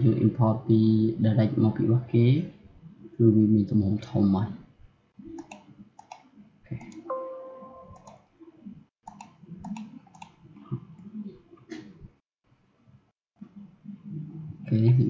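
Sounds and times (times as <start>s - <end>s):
computer mouse clicking: 5.3s - 7.1s, 7.9s - 8.2s, 9.1s - 11.9s.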